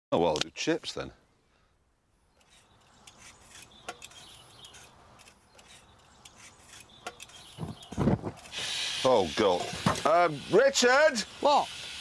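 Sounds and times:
blade scraping potato skin: 0:02.3 - 0:09.2.

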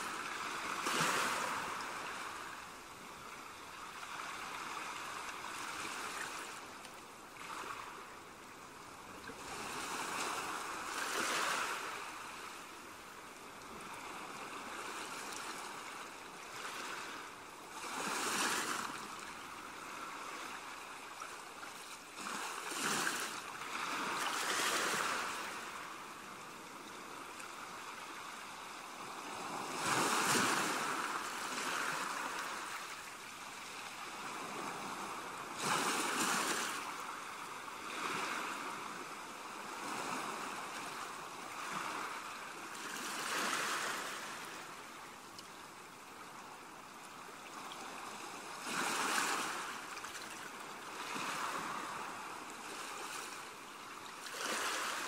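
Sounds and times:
waves washing on pebble beach: 0:00.0 - 0:02.5, 0:22.1 - 0:26.0, 0:28.8 - 0:44.8, 0:47.8 - 0:50.0, 0:50.8 - 0:53.3, 0:54.2 - 0:55.0.

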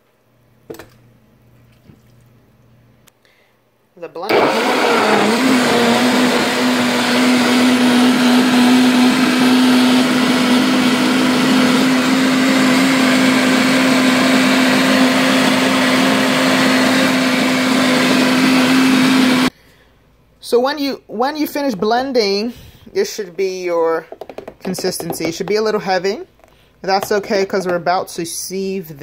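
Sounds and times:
blender running: 0:04.2 - 0:19.5.

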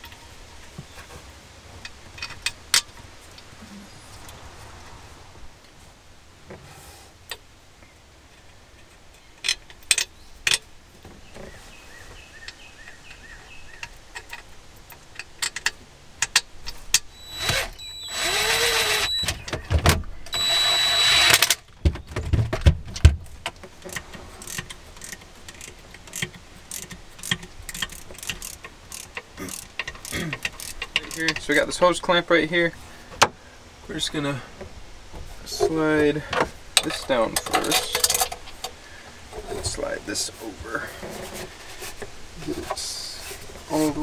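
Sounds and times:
power drill whining: 0:17.1 - 0:19.4, 0:20.3 - 0:21.6
tools clicking and clinking: 0:23.9 - 0:31.4, 0:36.8 - 0:38.8.

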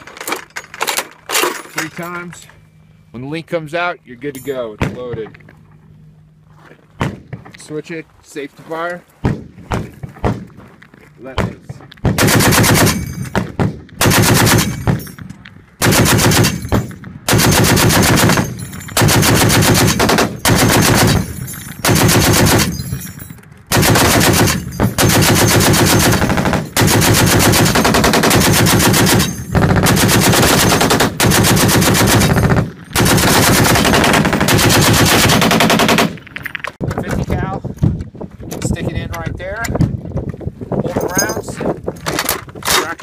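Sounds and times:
heavy machine gun firing bursts: 0:12.0 - 0:15.0, 0:15.8 - 0:22.8, 0:23.7 - 0:36.2.

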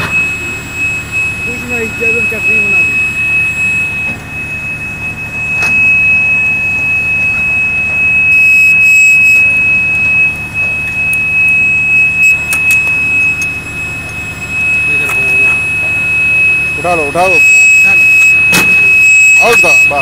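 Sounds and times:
high-pitched electronic buzzer tone: 0:00.0 - 0:20.0
low machine hum: 0:00.0 - 0:20.0
sharp clicks: 0:12.4 - 0:14.2.

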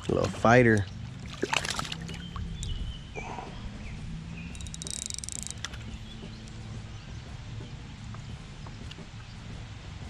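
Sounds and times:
water splashing: 0:00.0 - 0:10.0
fishing reel clicking: 0:04.5 - 0:05.8.

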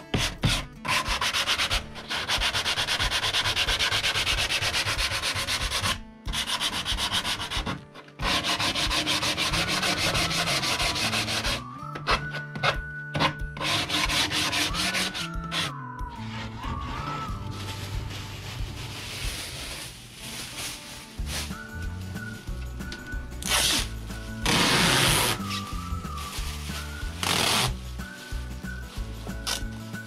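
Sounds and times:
sandpaper rasping on wood: 0:00.1 - 0:11.6, 0:13.6 - 0:15.7, 0:27.2 - 0:27.8.

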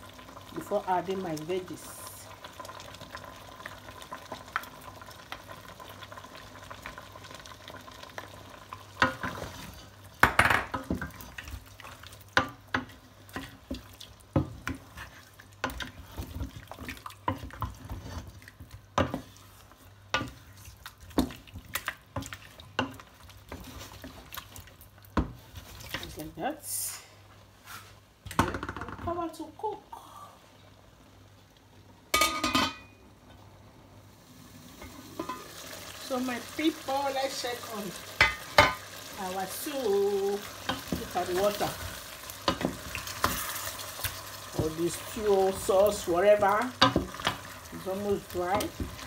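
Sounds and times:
wooden spoon stirring pot: 0:09.0 - 0:26.4, 0:36.1 - 0:49.0.

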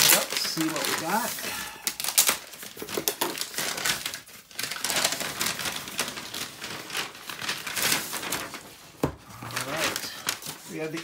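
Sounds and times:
plastic mailer crinkling: 0:00.0 - 0:11.0.

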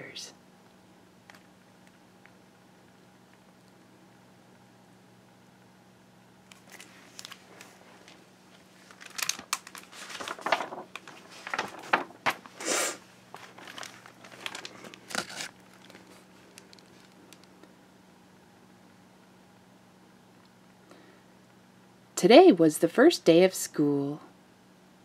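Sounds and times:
book pages crinkling and rustling: 0:06.5 - 0:12.6, 0:13.3 - 0:17.6.

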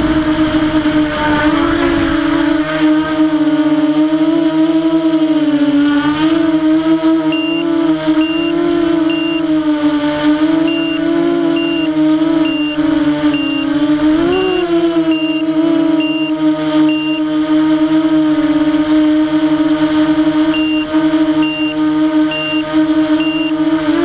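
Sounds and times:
drone motors whining: 0:05.8 - 0:24.0
short high electronic beep: 0:07.4 - 0:07.6, 0:08.2 - 0:08.5, 0:09.1 - 0:09.4, 0:10.7 - 0:11.0, 0:11.6 - 0:11.9, 0:12.5 - 0:12.8, 0:13.4 - 0:13.7, 0:14.4 - 0:15.4, 0:16.0 - 0:16.3, 0:16.9 - 0:17.2, 0:20.6 - 0:20.8, 0:21.4 - 0:22.6, 0:23.2 - 0:23.5.

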